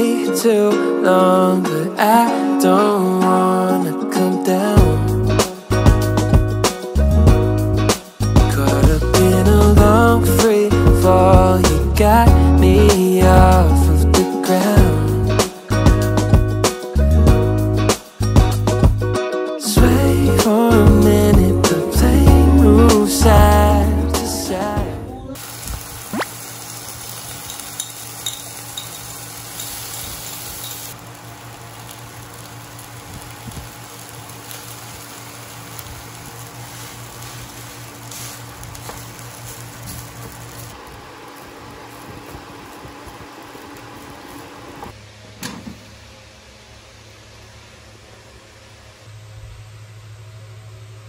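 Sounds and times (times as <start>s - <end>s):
low steady hum: 19.9s - 51.0s
rice sizzling in a pan: 25.4s - 44.9s.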